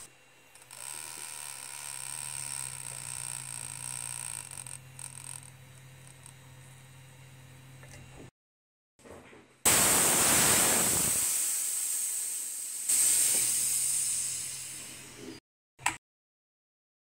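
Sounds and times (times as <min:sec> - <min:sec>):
high-pressure air hissing: 0:09.7 - 0:15.4.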